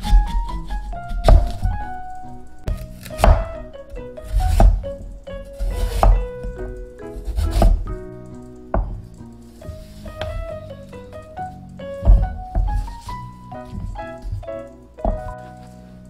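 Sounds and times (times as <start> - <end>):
knife chopping on wooden board: 0.0 - 1.8, 2.7 - 3.7, 4.3 - 4.8, 5.5 - 6.3, 7.2 - 7.8
background music: 0.0 - 16.0.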